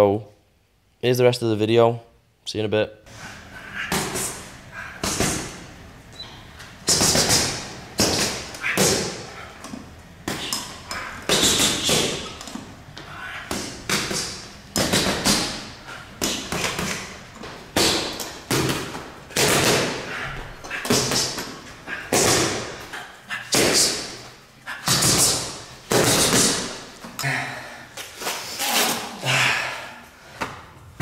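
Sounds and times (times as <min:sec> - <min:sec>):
punches thudding on punching bags: 0:06.8 - 0:09.3, 0:11.2 - 0:12.4, 0:13.5 - 0:20.1, 0:20.8 - 0:22.8, 0:24.8 - 0:26.8.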